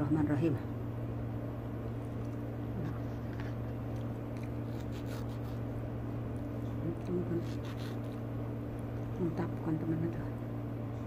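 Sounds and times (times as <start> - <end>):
low mechanical hum: 0.0 - 11.0
knife cutting soft fruit: 2.1 - 9.2.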